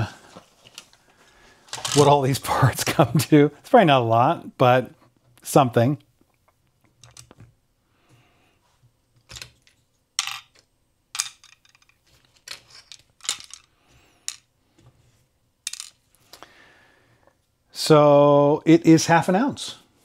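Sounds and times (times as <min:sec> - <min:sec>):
small plastic parts clicking: 0:06.8 - 0:07.5, 0:09.2 - 0:14.5.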